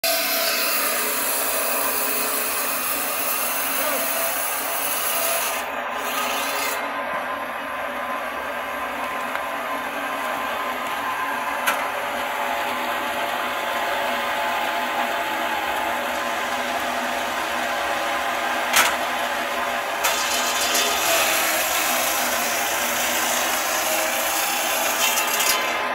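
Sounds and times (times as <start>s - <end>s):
circular saw grinding through stone: 0.0s - 7.0s, 12.4s - 25.9s.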